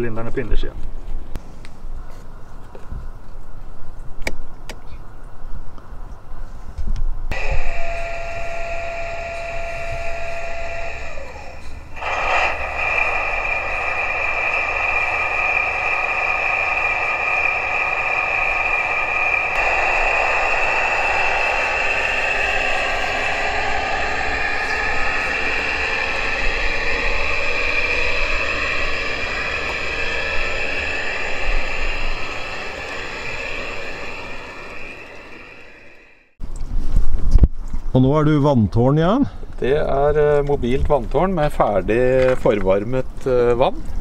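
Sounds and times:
model locomotive whine: 7.3s - 36.4s.

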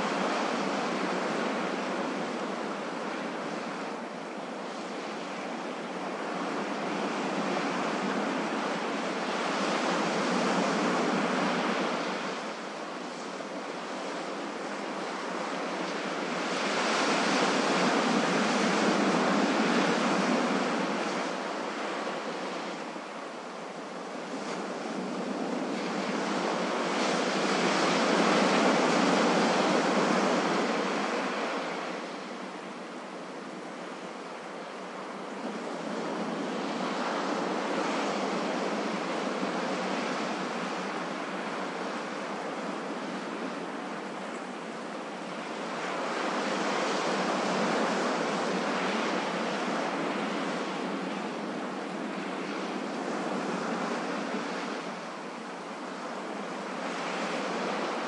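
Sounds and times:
ocean waves washing onto beach: 0.0s - 58.0s.

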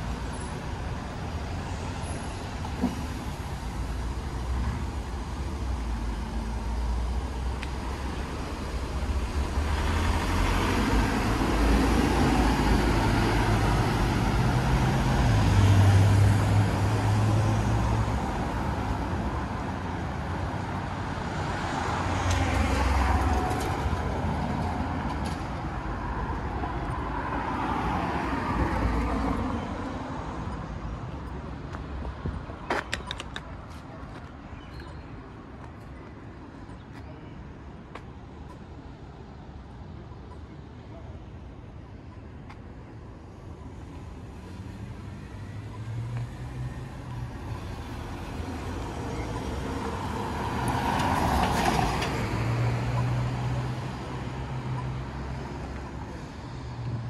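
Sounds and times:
vehicles passing: 0.0s - 57.0s.

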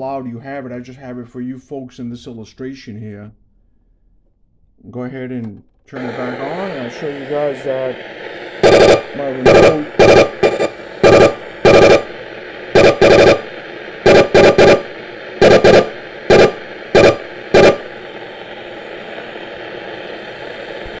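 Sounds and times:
radio static hiss: 5.9s - 21.0s
short loud buzzing bursts: 8.6s - 18.1s.

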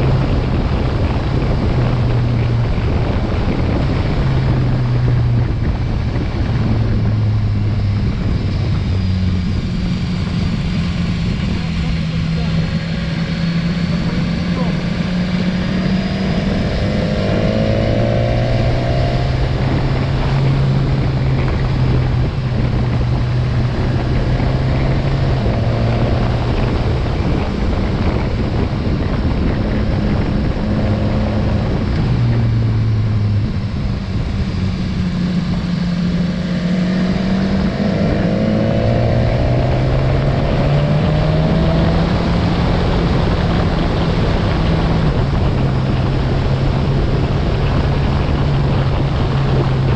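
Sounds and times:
motorcycle engine revving: 0.0s - 49.9s
wind rush over microphone: 0.0s - 49.9s.

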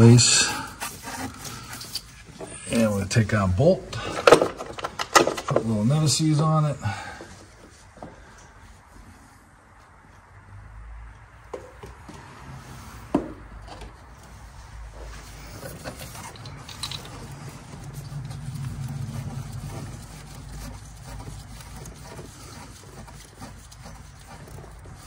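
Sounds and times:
hand rubbing among hoses: 0.0s - 10.4s, 11.5s - 25.0s
low rubbing rumble: 14.6s - 25.0s.

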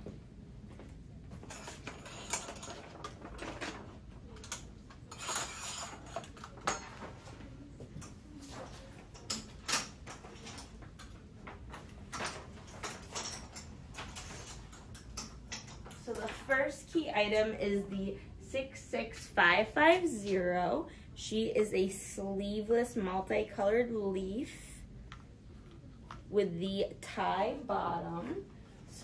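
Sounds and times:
hangers clicking on metal rail: 1.4s - 3.8s, 4.4s - 6.9s, 12.1s - 16.6s.

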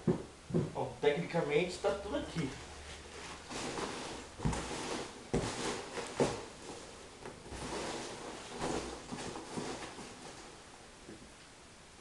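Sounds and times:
cardboard box rustling and scraping: 2.8s - 10.5s.

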